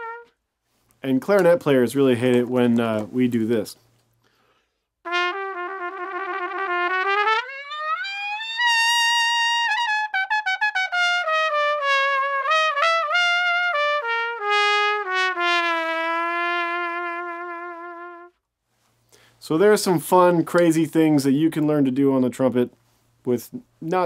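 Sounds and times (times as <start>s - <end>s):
solo trumpet: 0.0s - 0.4s, 5.0s - 18.4s.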